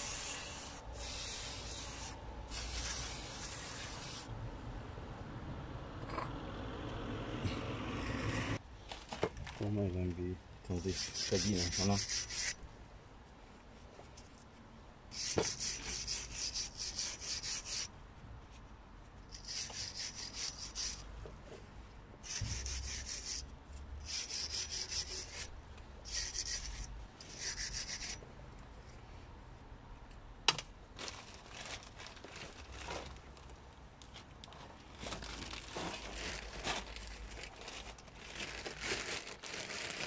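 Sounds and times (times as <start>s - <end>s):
wire brush scrubbing rusty steel: 10.7s - 12.6s, 15.1s - 17.9s, 19.3s - 21.1s, 22.2s - 28.2s.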